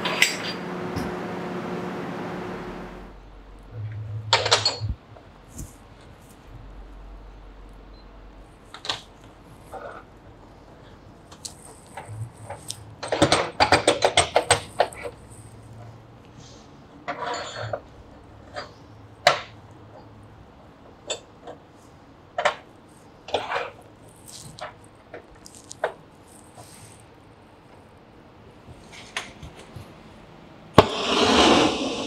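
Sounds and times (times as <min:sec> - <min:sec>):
steel clanking on steel table: 0:00.0 - 0:00.7.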